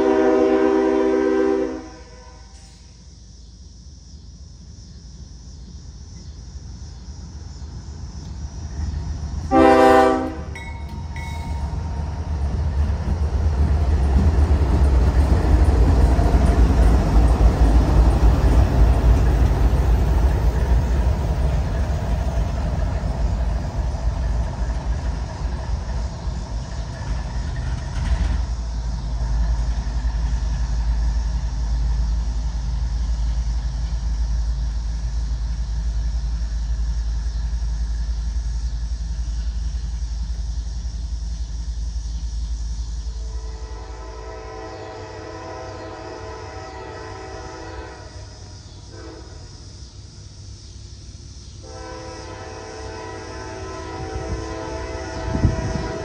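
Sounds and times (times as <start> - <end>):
locomotive horn blast: 0.0 - 2.7, 9.5 - 10.7, 43.2 - 49.5, 51.6 - 56.0
diesel locomotives rumbling past: 0.0 - 56.0.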